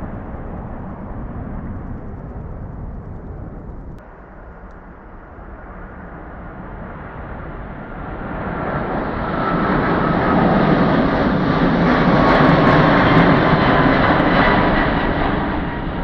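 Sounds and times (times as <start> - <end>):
jet engines at takeoff: 0.0 - 16.0.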